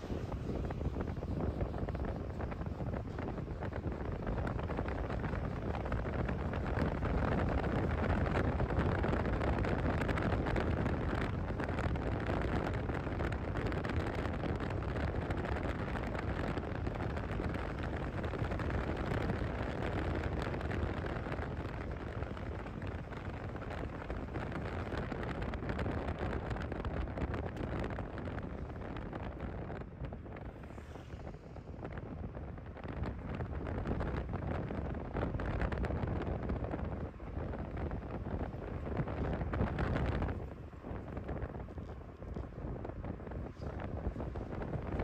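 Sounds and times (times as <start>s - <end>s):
low road and vehicle rumble: 0.0s - 45.0s
wind rushing over microphone: 0.0s - 45.0s.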